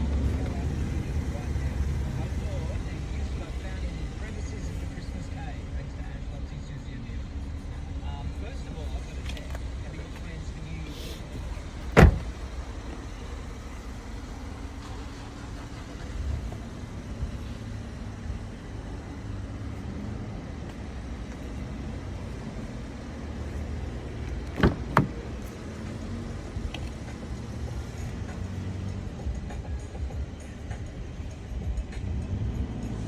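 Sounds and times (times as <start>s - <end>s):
car engine idling: 0.0s - 33.0s
car door handle clicks: 24.4s - 25.2s.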